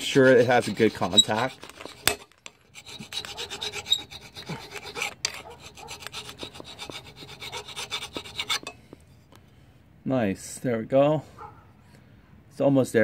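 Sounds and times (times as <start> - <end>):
hand file rasping on metal: 0.0 - 8.8.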